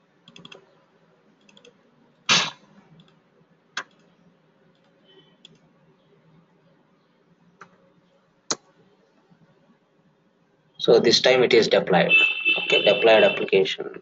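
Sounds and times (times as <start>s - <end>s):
computer mouse clicks: 0.2s - 0.7s, 1.4s - 3.2s, 3.8s - 5.7s, 7.6s - 7.8s
keyboard keystrokes: 3.8s - 4.1s.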